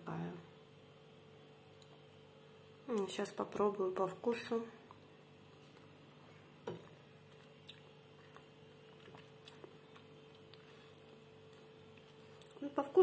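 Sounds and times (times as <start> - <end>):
low steady hum: 0.0 - 13.0
faint chewing: 4.8 - 12.8.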